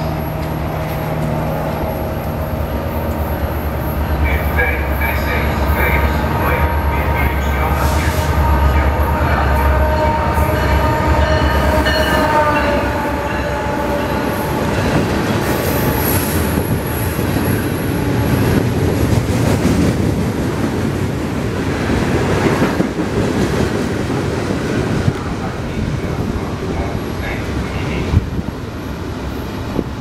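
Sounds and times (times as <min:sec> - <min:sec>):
locomotive horn tones: 0:00.0 - 0:18.8
diesel locomotive engine running: 0:00.0 - 0:30.0
freight cars wheel-on-rail noise: 0:00.0 - 0:30.0.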